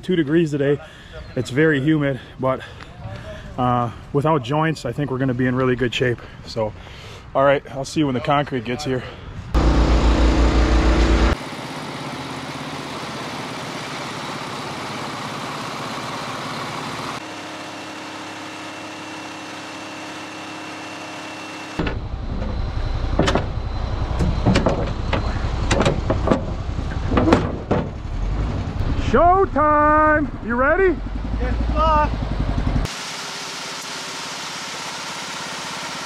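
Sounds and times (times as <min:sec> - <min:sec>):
diesel engine running: 0:09.6 - 0:36.0.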